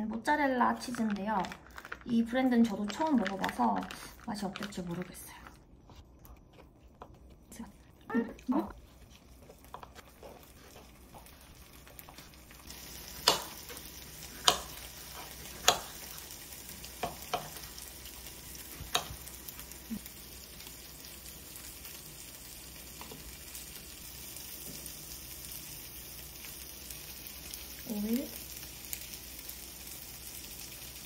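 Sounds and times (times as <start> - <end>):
food sizzling in a pan: 8.5 - 31.0.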